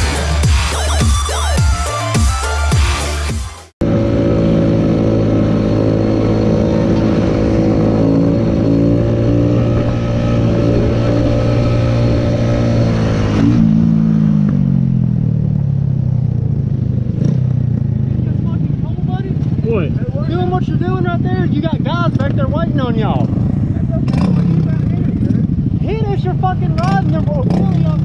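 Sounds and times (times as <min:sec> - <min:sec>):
motorcycle engine slowing down: 0:13.8 - 0:28.0.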